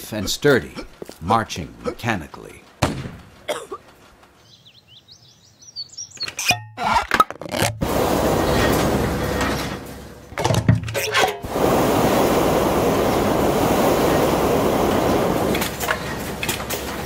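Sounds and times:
loud rushing hiss: 7.8s - 9.8s, 11.4s - 17.0s.

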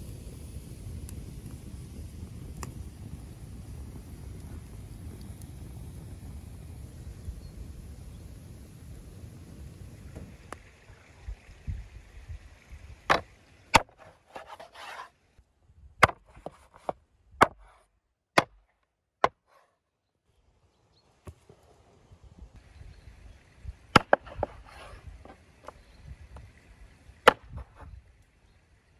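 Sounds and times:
knife blade scraping: 13.8s - 15.1s.

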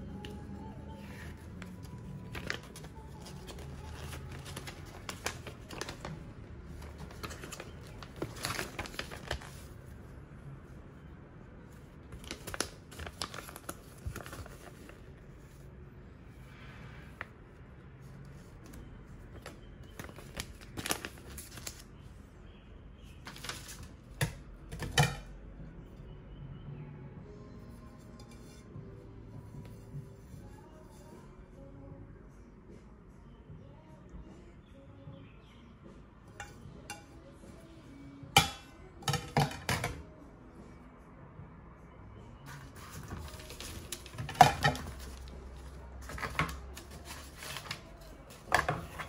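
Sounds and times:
paper rustling and crinkling: 1.0s - 10.0s, 11.7s - 15.7s, 18.0s - 21.9s, 23.2s - 25.1s, 42.5s - 49.0s.

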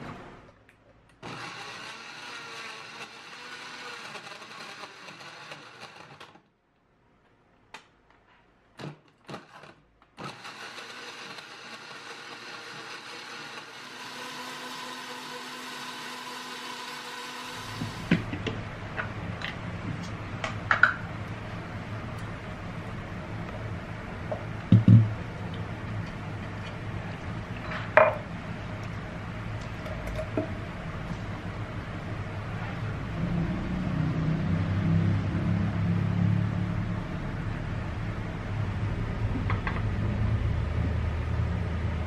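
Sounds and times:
blender motor running: 1.2s - 6.4s, 8.8s - 18.2s.

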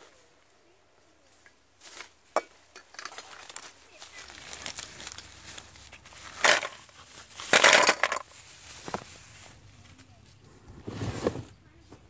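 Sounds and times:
snail shells clattering on metal: 2.7s - 3.6s, 4.6s - 8.3s.

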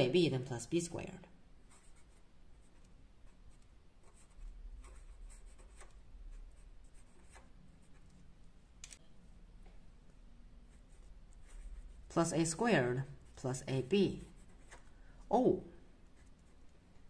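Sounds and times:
pen scratching on paper: 1.7s - 8.2s, 10.7s - 14.9s, 16.0s - 17.0s.

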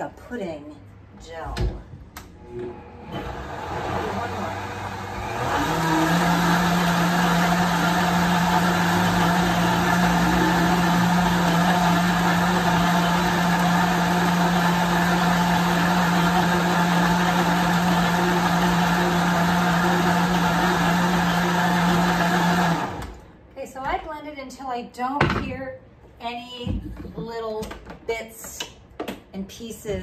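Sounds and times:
blender motor running: 2.6s - 23.2s.

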